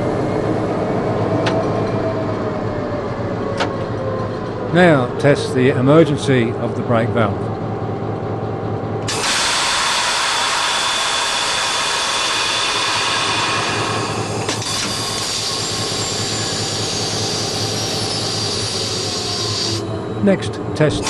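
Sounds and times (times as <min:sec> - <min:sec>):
diesel locomotive idling: 0:00.0 - 0:21.0
air rushing from brake pipe: 0:09.1 - 0:19.9.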